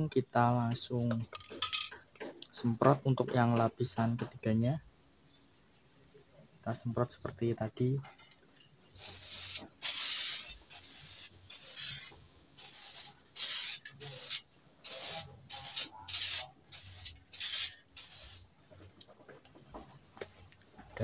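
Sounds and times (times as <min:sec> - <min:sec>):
spray paint can hissing: 0:09.0 - 0:18.5.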